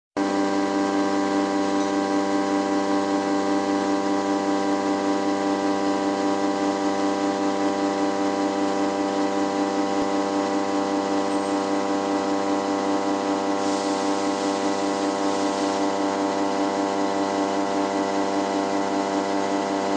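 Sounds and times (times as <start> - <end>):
milling machine hum: 0.2 - 19.9
machine noise hiss: 13.4 - 16.6.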